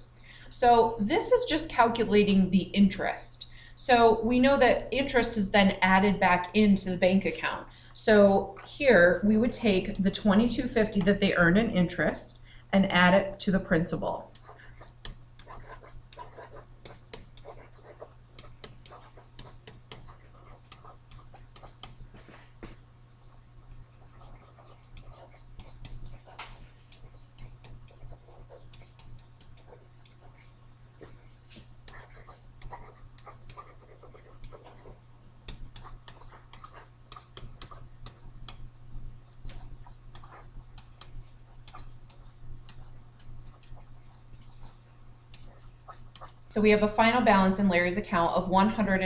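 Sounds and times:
low electrical hum: 0:00.0 - 0:49.0
stylus tapping on tablet screen: 0:14.3 - 0:22.8, 0:24.2 - 0:34.8, 0:35.4 - 0:46.4
stylus tapping on a tablet: 0:16.8 - 0:22.8, 0:24.8 - 0:30.2, 0:35.4 - 0:38.7.

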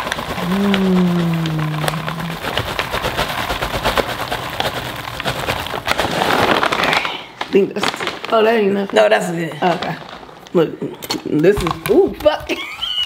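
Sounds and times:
popcorn pattering onto wooden board: 0:00.0 - 0:09.1
person holding long sung note: 0:00.4 - 0:02.6.

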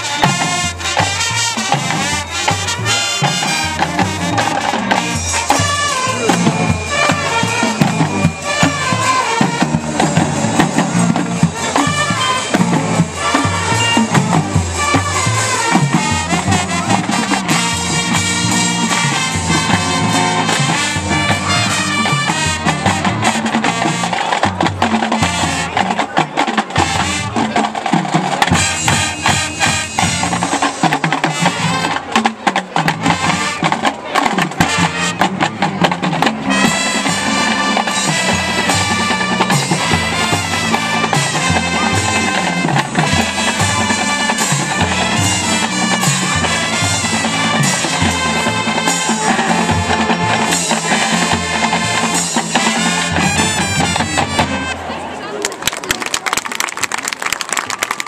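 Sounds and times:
horns playing held chords: 0:00.0 - 0:24.2, 0:36.3 - 0:55.2
marching band drums: 0:00.0 - 0:55.1.

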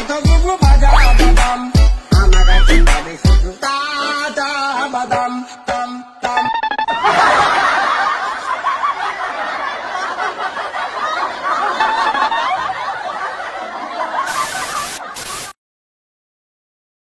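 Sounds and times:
many voices laughing: 0:06.9 - 0:15.4
burst of hiss: 0:14.3 - 0:15.6.

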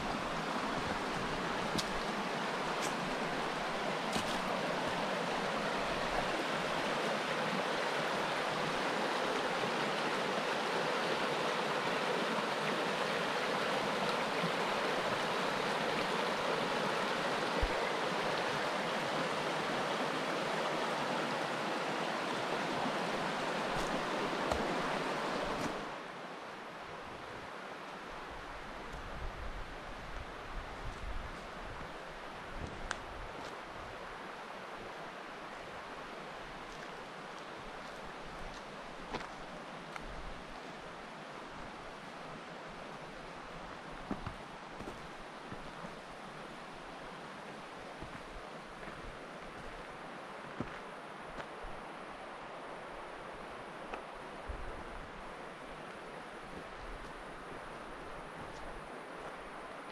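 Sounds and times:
river water rushing: 0:00.0 - 0:59.9.

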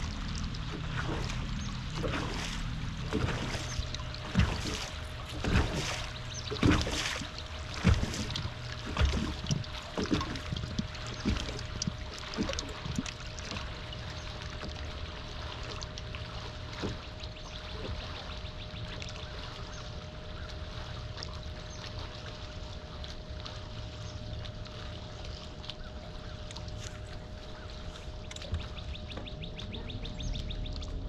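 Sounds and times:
small splashes: 0:00.0 - 0:31.0
steady low hum: 0:00.0 - 0:31.0
water lapping against boat hull: 0:00.0 - 0:31.0.

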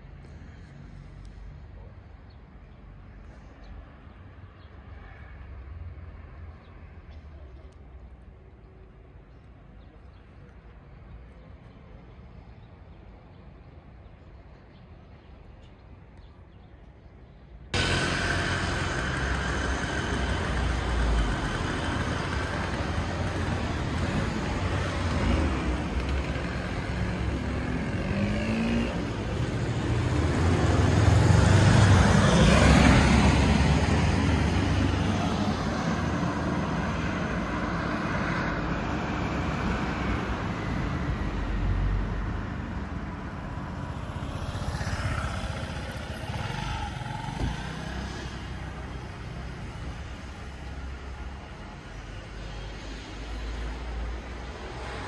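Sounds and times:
vehicles driving past: 0:17.6 - 0:55.0
motor scooter passing: 0:17.8 - 0:51.1.

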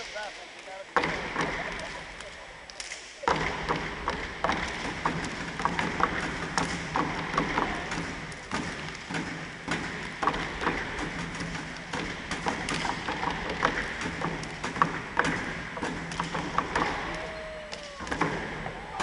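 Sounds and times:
crowd noise and voices: 0:00.0 - 0:19.0
hand claps: 0:15.8 - 0:19.0.

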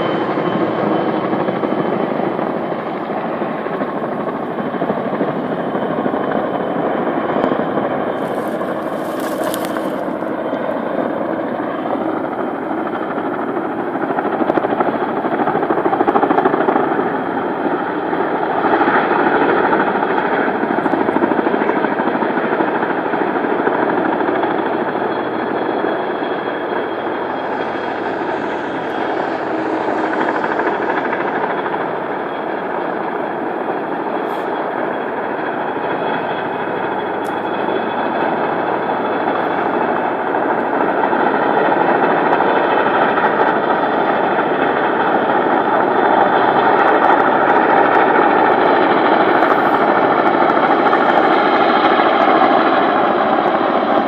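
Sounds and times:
helicopter rotor blades beating: 0:00.0 - 0:54.0.

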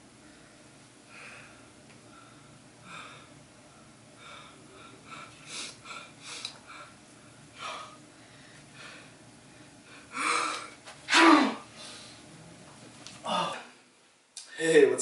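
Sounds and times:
man sneezing: 0:11.1 - 0:11.7.

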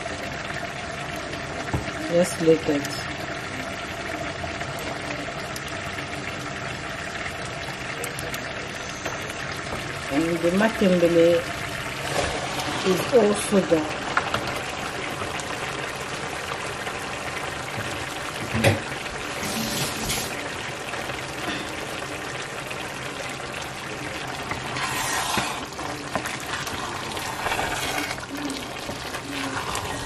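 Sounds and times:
stew bubbling in a pot: 0:00.0 - 0:30.0
wooden spoon stirring a pot: 0:08.1 - 0:30.0.

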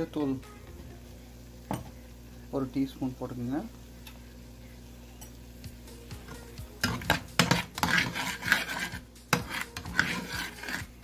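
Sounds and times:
spatula scraping metal pan: 0:06.8 - 0:11.0.

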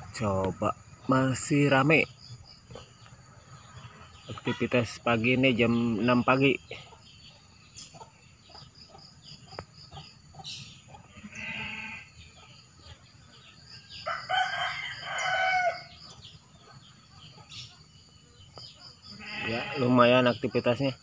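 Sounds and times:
rooster crowing: 0:13.9 - 0:16.0.

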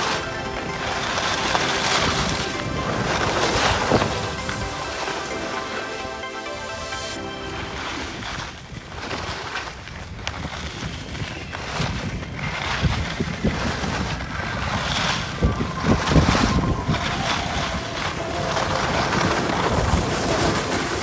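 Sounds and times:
snowboard scraping over snow: 0:00.0 - 0:21.0
wind buffeting microphone: 0:07.7 - 0:21.0.

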